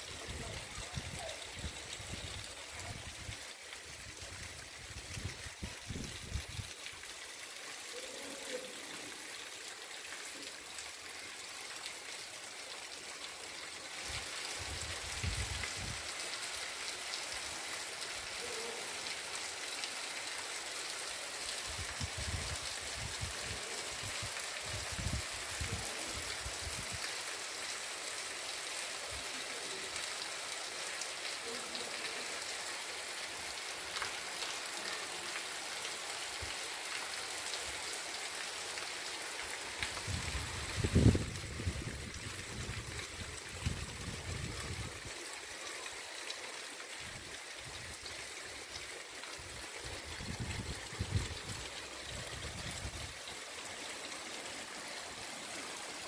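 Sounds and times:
rainwater rushing over cobblestones: 0:00.0 - 0:56.0.

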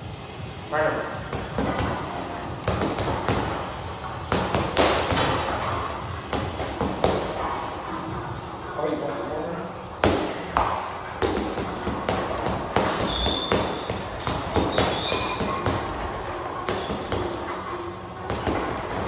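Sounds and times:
gloves punching heavy bag: 0:10.0 - 0:17.4.

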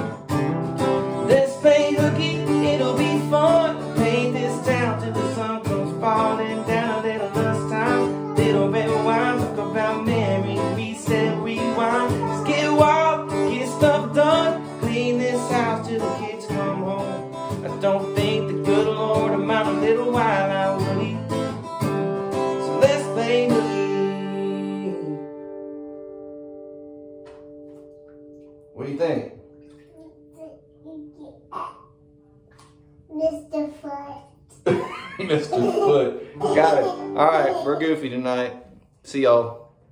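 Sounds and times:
strummed guitar: 0:00.0 - 0:32.0, 0:34.6 - 0:39.4
man singing: 0:01.1 - 0:21.6, 0:22.4 - 0:25.4.

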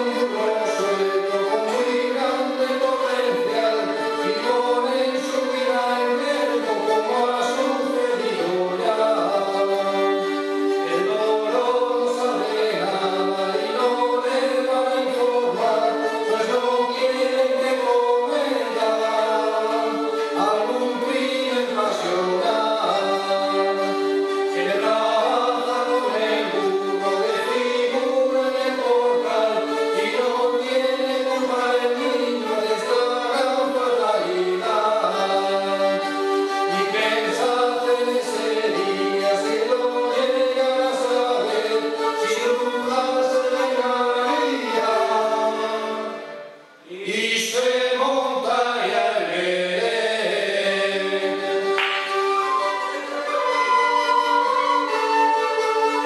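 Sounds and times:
bowed fiddles playing: 0:00.0 - 0:46.8, 0:51.0 - 0:56.0
men singing together: 0:10.9 - 0:35.9, 0:36.8 - 0:46.1, 0:46.8 - 0:51.7.

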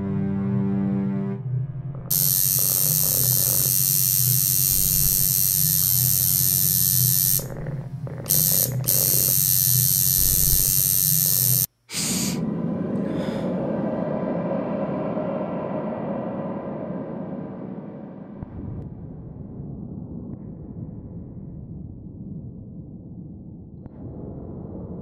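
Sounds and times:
electrical hum: 0:02.0 - 0:11.7
loud high hiss: 0:02.1 - 0:07.5, 0:08.3 - 0:12.4.

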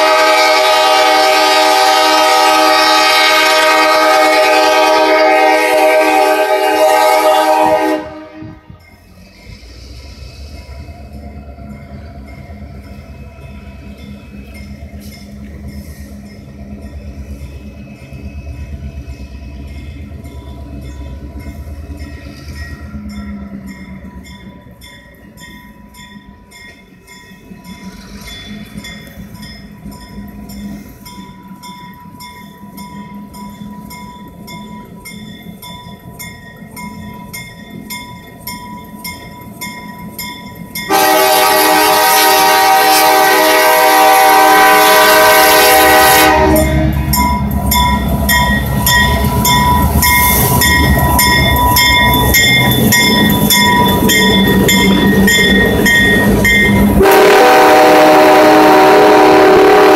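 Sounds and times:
locomotive air horn: 0:00.0 - 0:08.7, 0:40.9 - 0:47.0, 0:56.9 - 0:59.9
diesel locomotive engine rumble: 0:00.0 - 0:59.9.

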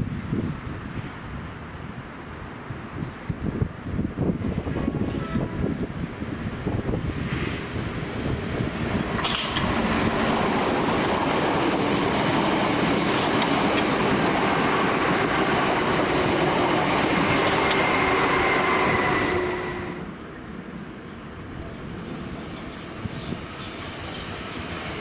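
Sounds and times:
train wheels rushing on rail: 0:02.4 - 0:25.0
sharp clicks of wheels: 0:09.1 - 0:09.8.

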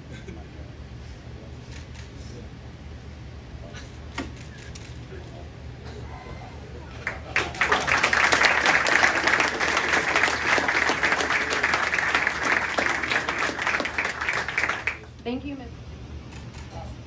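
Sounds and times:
audience applauding: 0:07.0 - 0:15.1.

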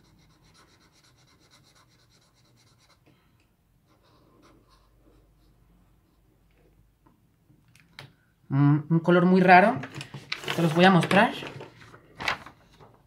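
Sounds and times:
felt marker scratching on paper: 0:00.0 - 0:03.0.

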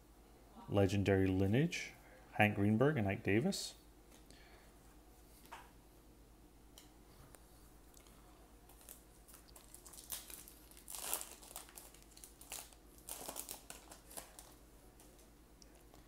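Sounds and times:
foil wrapper tearing and crinkling: 0:08.7 - 0:14.6.

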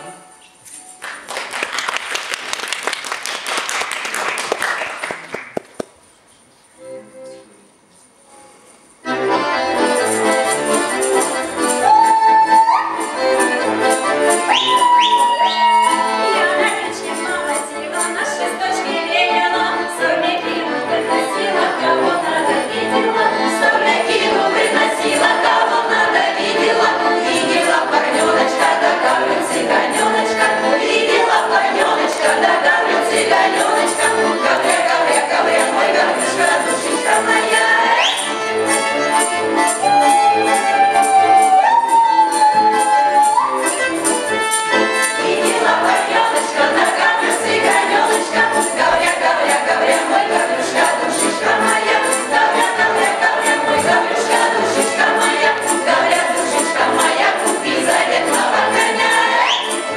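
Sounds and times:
accordion: 0:06.8 - 0:07.7, 0:08.3 - 0:59.9
women's choir singing folk song: 0:11.3 - 0:39.0, 0:44.7 - 0:59.9.

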